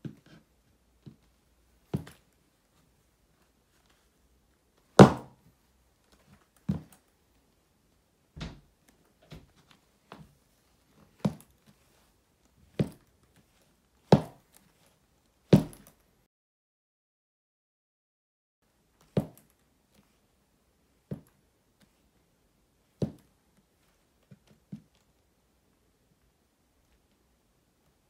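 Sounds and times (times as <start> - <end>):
boots stomping on hard floor: 5.0 - 5.3, 12.8 - 13.0, 14.1 - 14.4, 15.6 - 15.9
light heel taps: 14.1 - 14.4.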